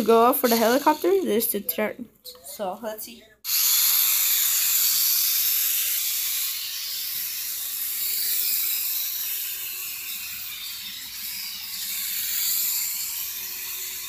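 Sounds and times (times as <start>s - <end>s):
toy helicopter rotor whir: 0.0s - 1.7s, 3.4s - 14.0s.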